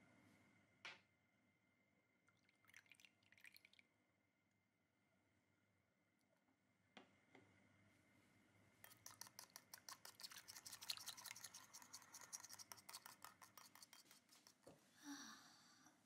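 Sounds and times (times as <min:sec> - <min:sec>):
spoon stirring in glass bowl: 0:08.8 - 0:14.7.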